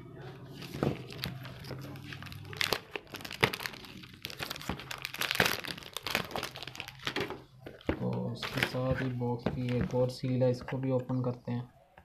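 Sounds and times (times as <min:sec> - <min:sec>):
plastic shrink-wrap tearing and crinkling: 0:00.7 - 0:07.5.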